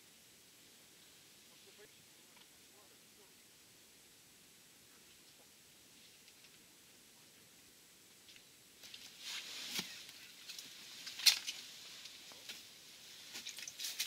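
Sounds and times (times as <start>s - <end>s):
rustling and crunching: 8.2s - 14.0s.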